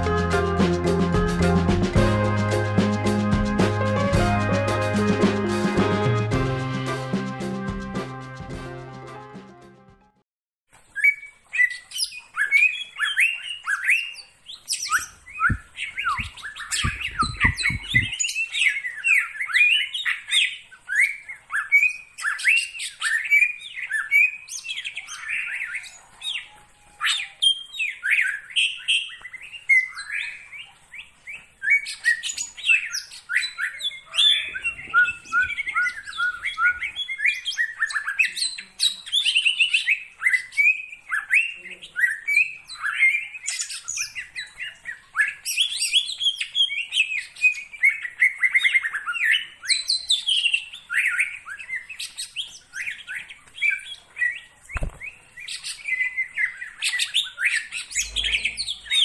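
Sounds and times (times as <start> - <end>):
bird singing chirps and whistles: 10.9 - 59.0
low thuds: 15.4 - 18.1.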